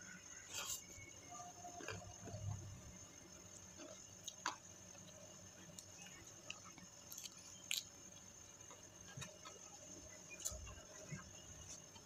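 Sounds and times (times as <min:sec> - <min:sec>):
quiet chewing: 0:03.6 - 0:12.0
crunchy bites: 0:05.7 - 0:08.3.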